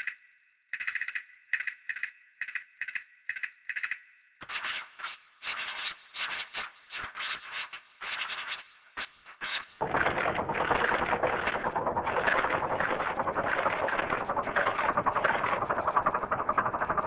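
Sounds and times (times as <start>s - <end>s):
rhythmic scraping bursts: 9.8s - 17.0s.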